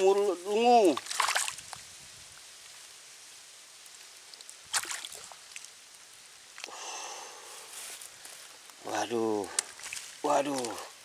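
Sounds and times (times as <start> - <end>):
faint outdoor hiss: 0.0 - 11.0
fishing float splash: 1.0 - 1.6, 4.7 - 5.7
soft rustling: 7.5 - 8.8, 9.5 - 11.0.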